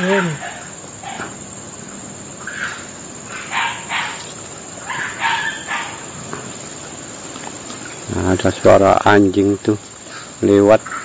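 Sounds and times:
dog barking: 0:03.3 - 0:04.2, 0:04.8 - 0:06.1.

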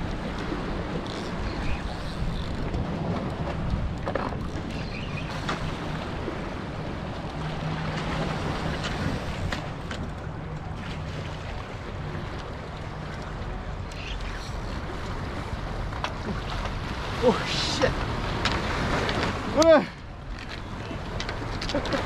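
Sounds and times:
wind buffeting microphone: 0:00.0 - 0:11.2.

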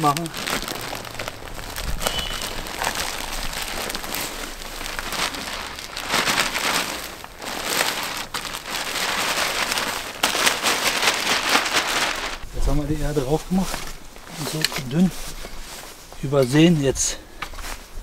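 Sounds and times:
soil pattering on garden bed: 0:00.0 - 0:12.4.

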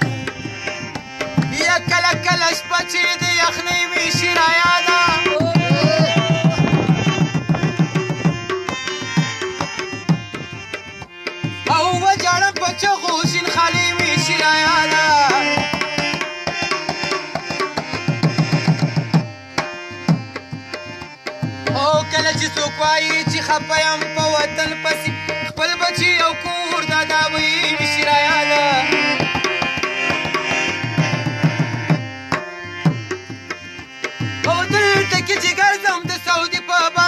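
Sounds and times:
harmonium chords: 0:00.0 - 0:37.0
tabla drumming: 0:00.0 - 0:37.0
man singing folk song: 0:01.4 - 0:07.3, 0:11.7 - 0:15.8, 0:21.7 - 0:29.2, 0:34.4 - 0:37.0.

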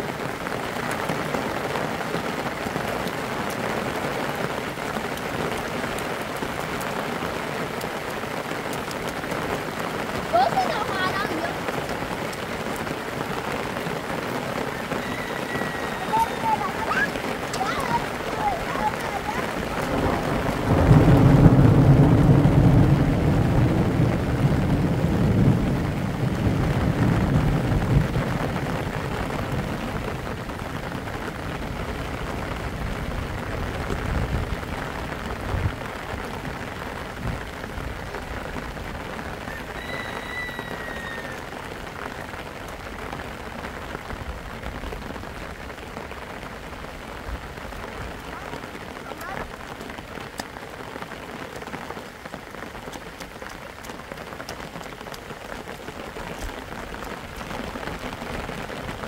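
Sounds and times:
rain falling on wet ground: 0:00.0 - 0:59.0.

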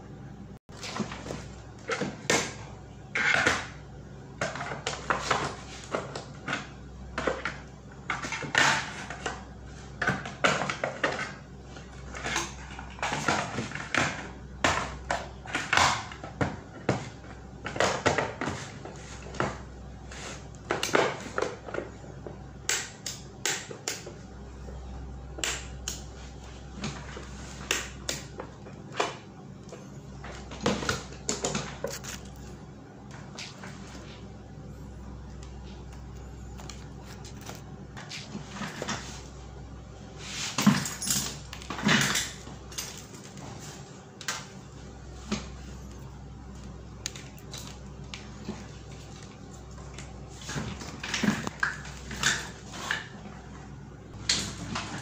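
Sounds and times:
steady low hum: 0:00.0 - 0:55.0
plastic parts clicking and scraping: 0:30.8 - 0:32.5.

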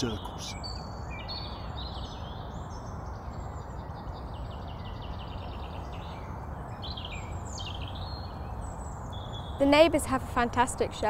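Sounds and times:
songbirds chirping: 0:00.0 - 0:11.0.

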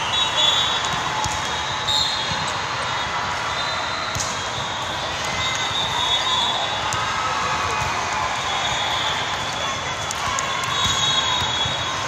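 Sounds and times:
whistle blasts: 0:00.0 - 0:00.9, 0:01.8 - 0:06.8, 0:10.5 - 0:12.0
volleyball hits and bounces: 0:00.0 - 0:02.6, 0:04.0 - 0:06.0, 0:06.8 - 0:12.0
din of crowds in hall: 0:00.0 - 0:12.0.

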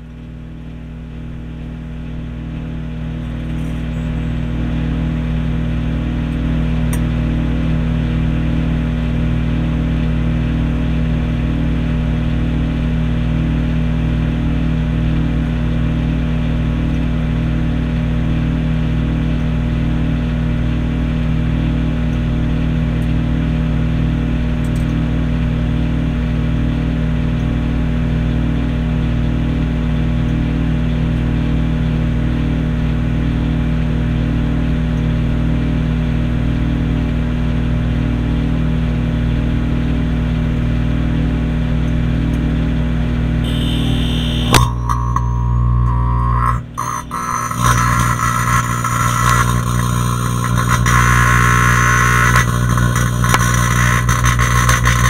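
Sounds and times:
microwave oven humming: 0:00.0 - 0:55.0
faint regular pulsing: 0:43.4 - 0:55.0.

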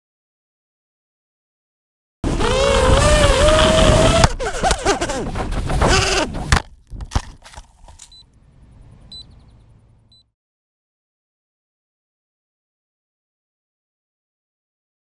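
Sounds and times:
drone motors and propellers: 0:02.2 - 0:08.2.

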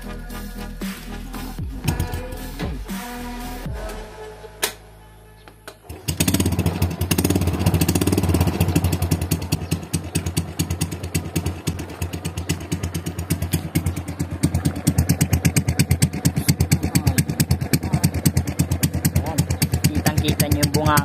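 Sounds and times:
motorcycle engine idling: 0:05.9 - 0:21.0.

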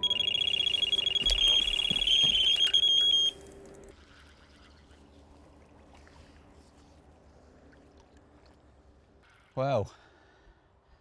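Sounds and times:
soft water sounds: 0:02.5 - 0:11.0.

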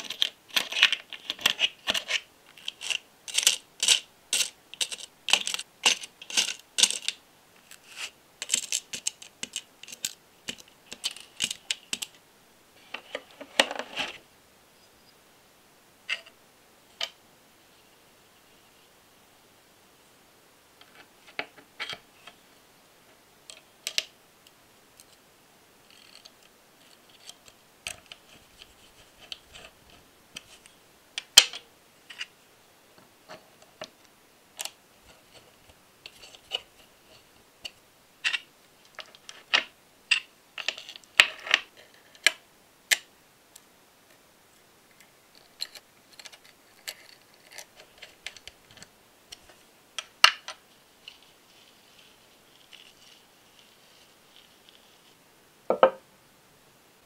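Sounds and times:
small metal parts clicking: 0:00.0 - 0:07.2, 0:08.4 - 0:12.1.

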